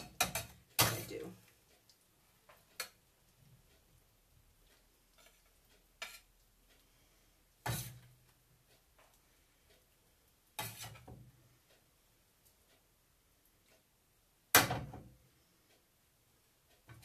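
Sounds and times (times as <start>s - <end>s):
spatula scraping a frying pan: 0.0s - 1.2s, 5.0s - 6.4s, 7.6s - 8.2s, 10.5s - 11.2s.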